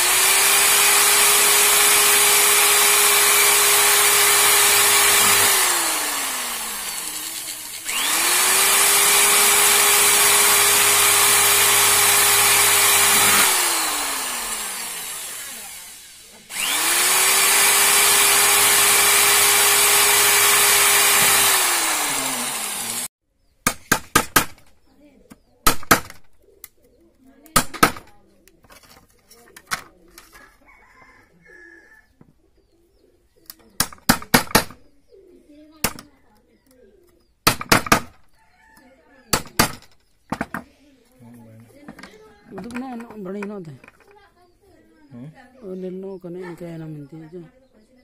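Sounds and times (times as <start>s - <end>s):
electric drill boring: 0.0s - 23.1s.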